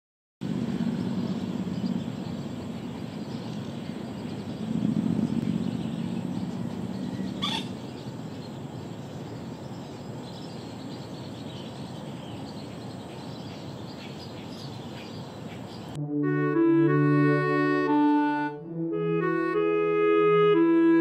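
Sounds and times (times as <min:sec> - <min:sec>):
low outdoor rumble: 0:00.4 - 0:20.0
short bird call: 0:07.4 - 0:07.7.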